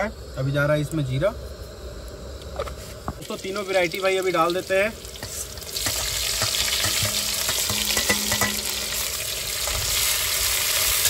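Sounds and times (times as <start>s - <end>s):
onions sizzling in hot oil: 3.2s - 11.0s.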